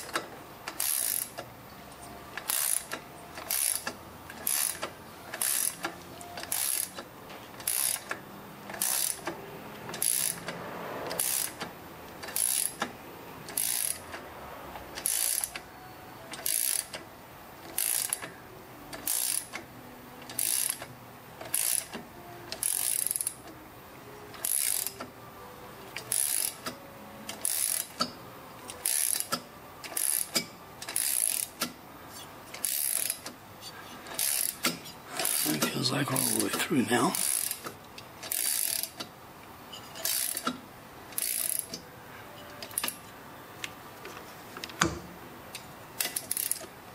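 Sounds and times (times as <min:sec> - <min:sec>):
ratchet wrench clicking: 0:00.0 - 0:01.5, 0:02.4 - 0:12.9, 0:13.5 - 0:14.2, 0:15.0 - 0:15.6, 0:16.4 - 0:17.0, 0:17.7 - 0:18.3, 0:19.0 - 0:19.6, 0:20.2 - 0:23.4, 0:24.4 - 0:25.1, 0:26.0 - 0:31.8, 0:32.6 - 0:33.4, 0:34.0 - 0:35.4, 0:37.2 - 0:39.1, 0:39.9 - 0:41.8, 0:42.6 - 0:43.0, 0:46.0 - 0:46.7.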